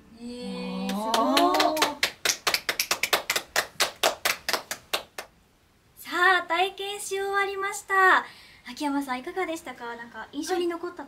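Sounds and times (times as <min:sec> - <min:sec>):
woman speaking: 0:00.4 - 0:02.0, 0:06.0 - 0:11.0
women clapping hands: 0:00.9 - 0:05.3.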